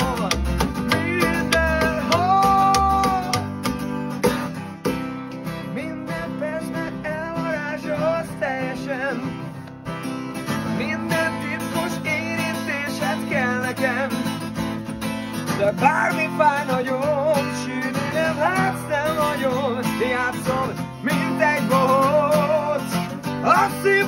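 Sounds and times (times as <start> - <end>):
upright double bass: 0.0 - 7.2
acoustic guitar strumming: 0.0 - 24.0.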